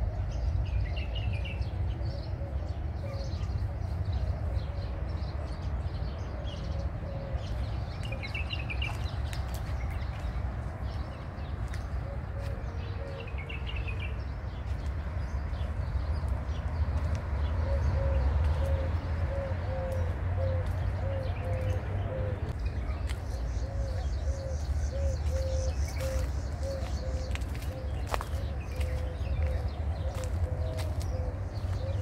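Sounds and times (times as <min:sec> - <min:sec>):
bird chirp: 0:00.0 - 0:32.0
dove cooing: 0:06.2 - 0:08.5, 0:12.0 - 0:14.0, 0:17.5 - 0:22.6, 0:23.4 - 0:32.0.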